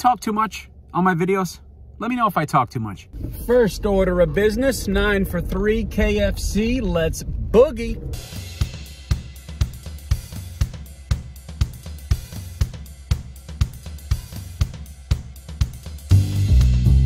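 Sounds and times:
bass line: 3.0 - 17.0
drum kit steady beat: 8.1 - 17.0.

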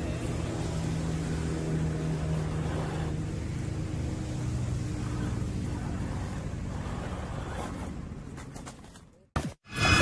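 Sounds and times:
rc car motor whining: 2.1 - 7.9.

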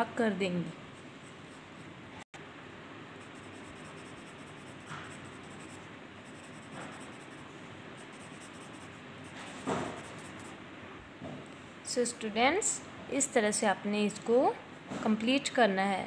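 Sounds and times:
pencil scrape: 3.2 - 10.6
pencil scratching on paper: 3.2 - 10.6.

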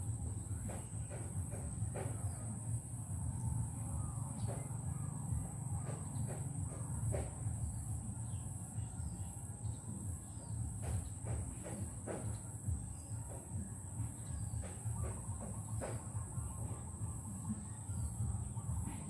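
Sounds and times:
low background rumble: 0.0 - 11.2.

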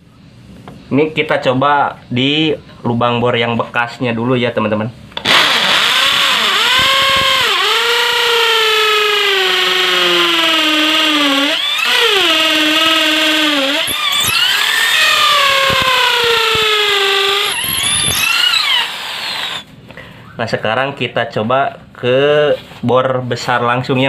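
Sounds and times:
impact drill boring into concrete: 5.2 - 19.7.

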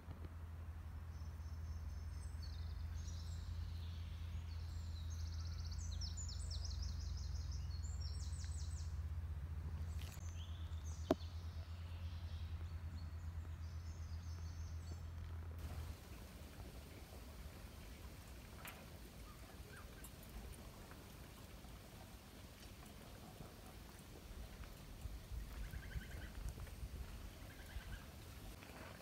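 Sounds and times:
steady low rumble: 7.4 - 28.7.

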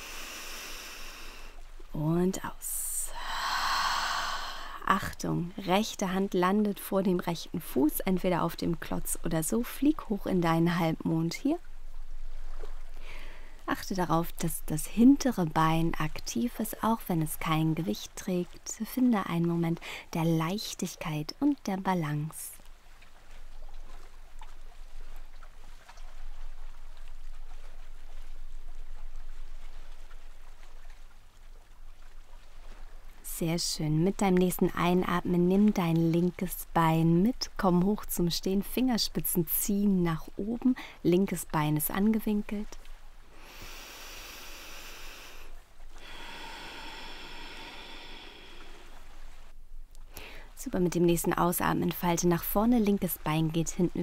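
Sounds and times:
slow deep breaths: 0.0 - 1.6, 3.1 - 4.9, 12.9 - 13.7, 43.3 - 49.5, 50.1 - 50.6
steady rushing hiss: 0.0 - 1.6, 43.4 - 49.5
low hum: 0.0 - 18.8, 23.6 - 53.9.

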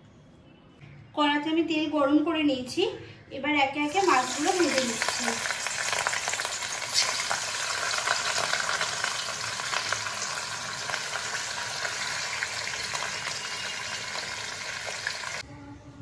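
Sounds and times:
fish sizzling in hot oil: 3.9 - 15.4.

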